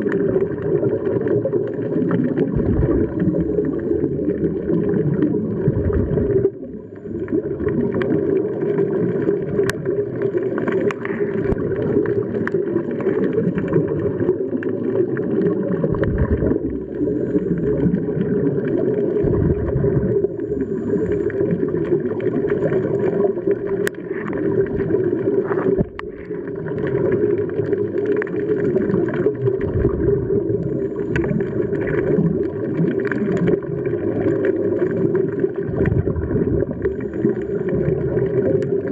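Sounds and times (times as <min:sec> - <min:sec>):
underwater regulator bubbling: 0:00.0 - 0:38.9
faint clicks: 0:09.6 - 0:13.7, 0:23.6 - 0:24.5, 0:31.1 - 0:33.6.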